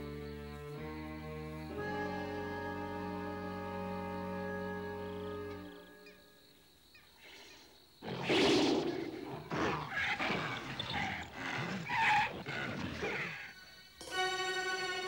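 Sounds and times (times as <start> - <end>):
animals growling and snarling: 8.0 - 14.0.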